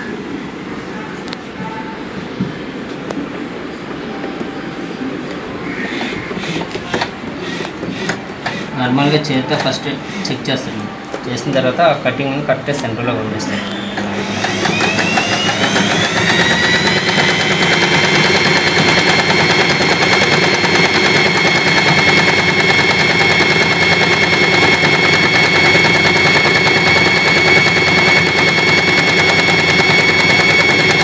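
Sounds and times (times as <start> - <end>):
sewing machine motor whine: 5.8 - 10.7, 13.4 - 31.0
sewing needle chatter: 14.4 - 31.0.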